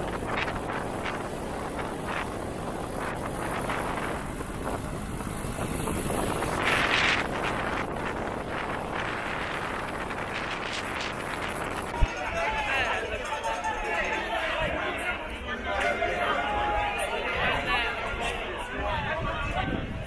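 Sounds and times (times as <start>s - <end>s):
vehicle engine and road noise: 0.0s - 12.3s
wind rushing over microphone: 0.0s - 13.0s, 17.3s - 20.0s.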